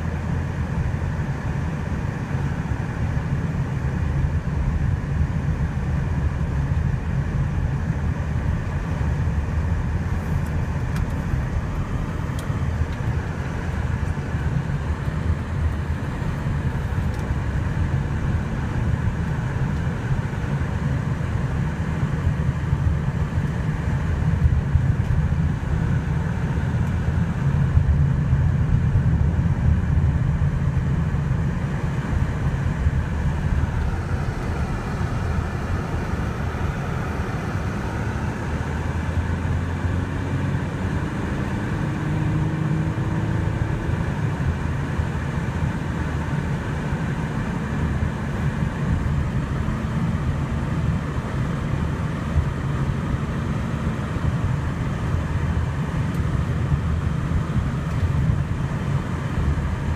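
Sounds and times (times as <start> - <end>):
car engine and tyre rumble: 0.0 - 59.9
faint engine note rising: 32.0 - 43.8.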